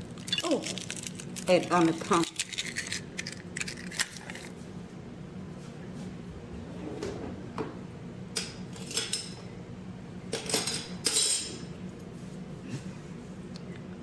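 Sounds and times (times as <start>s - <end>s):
metal utensils clattering on dishes: 8.4s - 9.4s, 10.4s - 11.7s.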